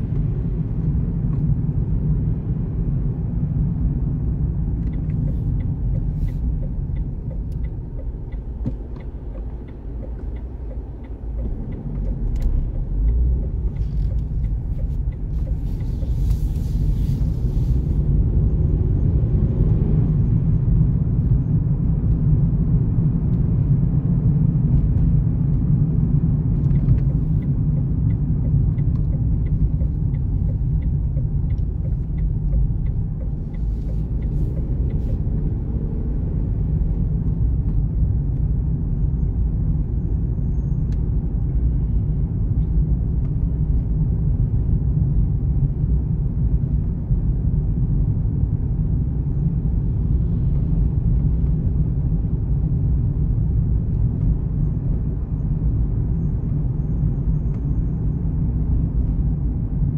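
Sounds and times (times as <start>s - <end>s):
car engine and tyres rumbling: 0.0s - 59.9s.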